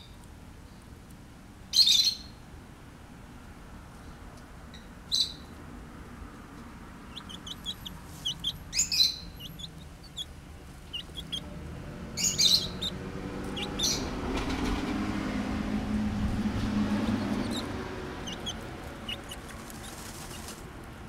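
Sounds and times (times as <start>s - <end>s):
wings and dirt rustling: 6.6s - 21.0s
chick chirping: 7.0s - 14.6s, 16.3s - 20.7s.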